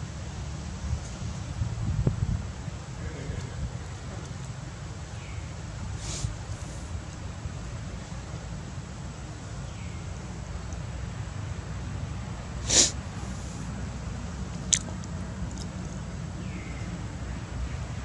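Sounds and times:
monkey snorting: 12.6s - 13.7s.

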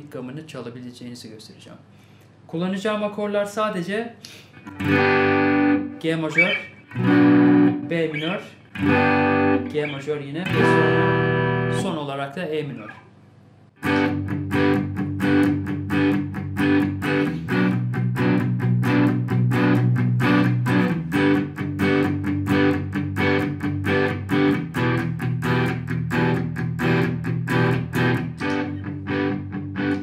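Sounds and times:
electric guitar strumming chords: 4.6s - 12.0s, 13.8s - 30.0s.

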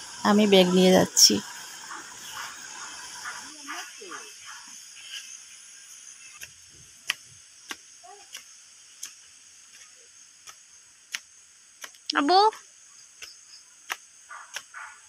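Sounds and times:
steady high hiss: 0.0s - 15.0s.

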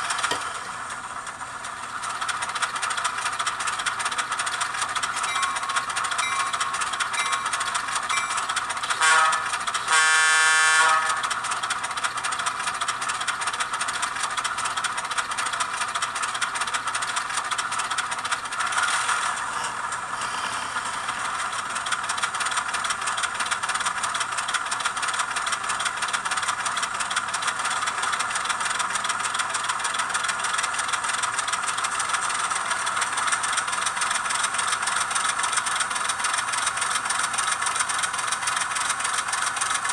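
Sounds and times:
diesel locomotive engine running: 0.0s - 39.9s
locomotive horn: 8.8s - 11.4s.

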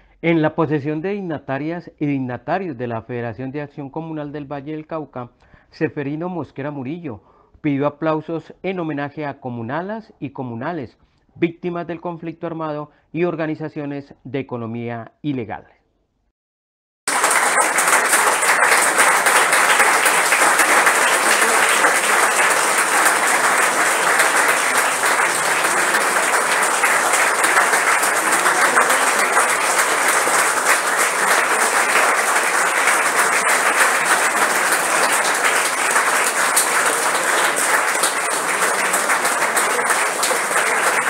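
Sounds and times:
crowd applauding: 17.1s - 41.0s.

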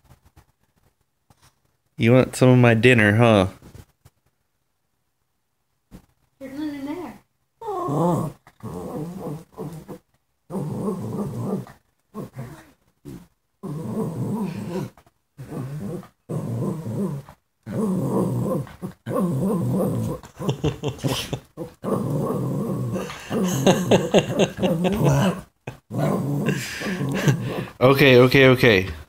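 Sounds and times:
dog grumbling growls: 7.6s - 27.8s.

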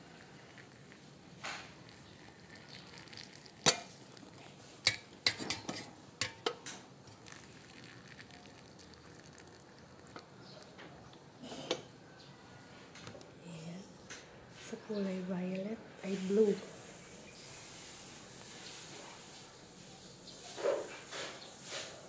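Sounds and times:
hot water trickling into teapot: 0.0s - 11.1s.

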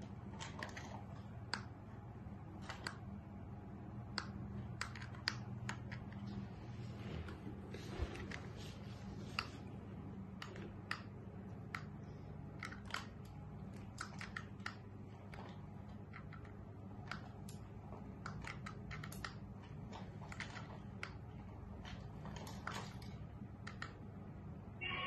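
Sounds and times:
low steady hum: 0.0s - 25.0s.

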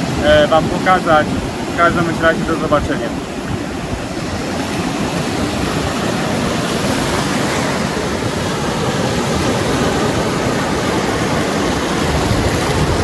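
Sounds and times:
surf washing onto beach: 0.0s - 13.0s.

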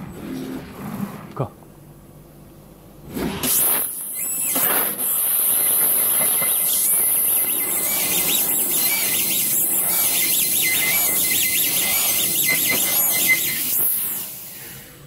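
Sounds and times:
laser cutting machine hissing: 3.4s - 15.0s
cutting head whine: 5.6s - 14.8s.

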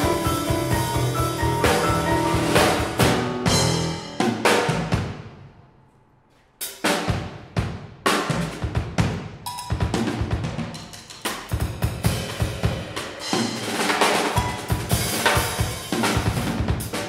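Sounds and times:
jazz trio playing: 0.0s - 5.1s
drum kit sharp strokes: 0.0s - 5.3s, 9.5s - 17.0s.

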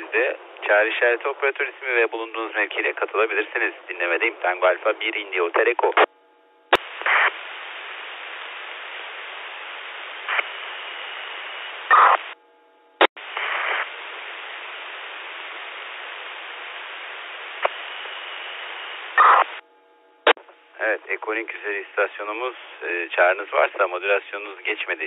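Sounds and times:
radio static hiss: 0.0s - 6.1s, 6.7s - 12.4s, 13.0s - 19.6s, 20.2s - 25.0s
radio transmission click: 5.8s - 6.1s, 6.7s - 7.4s, 17.6s - 18.2s, 19.1s - 19.6s.

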